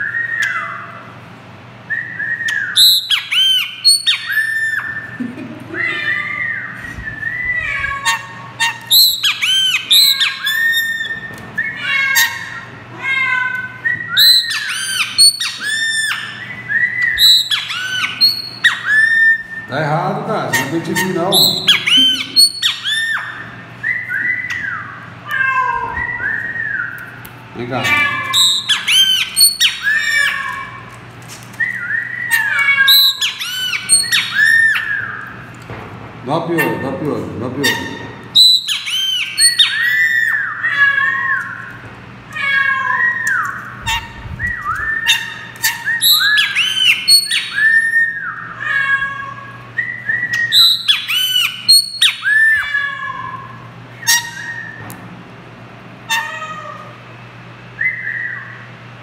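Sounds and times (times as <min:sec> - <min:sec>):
bird whistling and squawking: 0:00.0 - 0:01.0, 0:01.9 - 0:05.2, 0:05.8 - 0:12.7, 0:13.6 - 0:19.8, 0:20.4 - 0:25.2, 0:25.8 - 0:27.2, 0:27.8 - 0:30.8, 0:31.6 - 0:35.4, 0:37.6 - 0:41.7, 0:42.4 - 0:49.2, 0:49.8 - 0:53.1, 0:53.9 - 0:54.9, 0:57.8 - 0:58.8
blackbird calling and chirping: 0:00.0 - 0:01.1, 0:02.0 - 0:31.0, 0:31.6 - 0:35.5, 0:36.4 - 0:54.9, 0:57.7 - 0:58.8.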